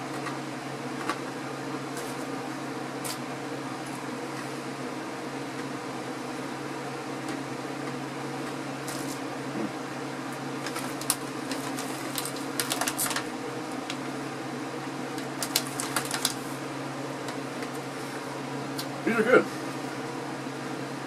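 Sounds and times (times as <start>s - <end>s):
steady mechanical hum: 0.0s - 21.0s
chip bag crinkling: 10.5s - 14.0s, 15.2s - 16.6s.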